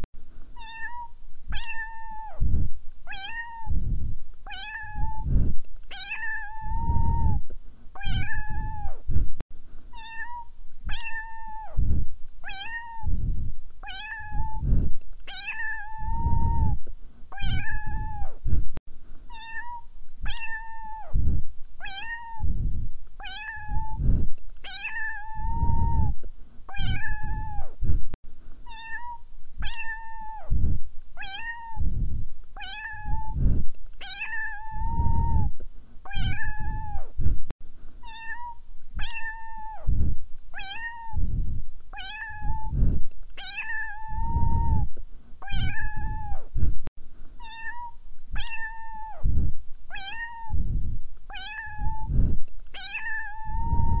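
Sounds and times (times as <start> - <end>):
cat meowing: 0.6 - 2.4, 3.1 - 3.7, 4.5 - 5.3, 5.9 - 7.4, 8.0 - 9.0, 9.9 - 11.8, 12.4 - 13.1, 13.8 - 14.6, 15.3 - 16.8, 17.4 - 18.4, 19.3 - 21.2, 21.8 - 22.5, 23.2 - 24.0, 24.6 - 27.7, 28.7 - 30.5, 31.2 - 31.8, 32.6 - 33.4, 34.0 - 35.5, 36.1 - 37.1, 38.0 - 39.9, 40.6 - 41.2, 42.0 - 42.8, 43.4 - 46.4, 47.4 - 49.3, 49.9 - 50.6, 51.3 - 52.1, 52.8 - 54.0.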